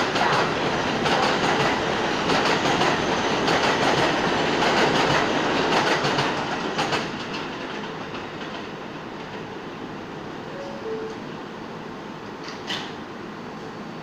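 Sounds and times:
train wheels clacking over rail joints: 0.0 - 9.5.

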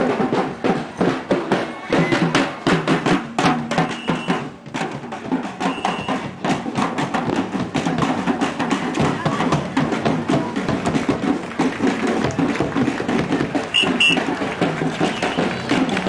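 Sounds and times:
crowd voices: 0.0 - 6.4, 7.9 - 16.0
bass drums beating: 0.0 - 16.0.

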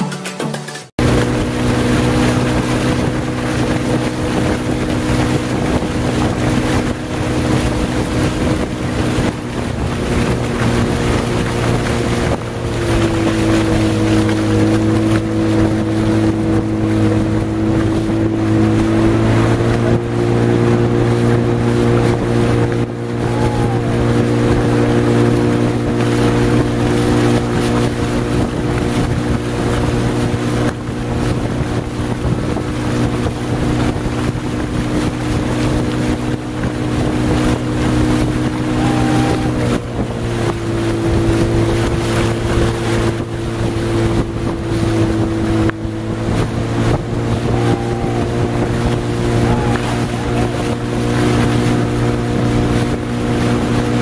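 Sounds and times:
motorboat engine running: 0.9 - 54.0
water rushing: 1.0 - 54.0
wind buffeting microphone: 1.0 - 54.0.

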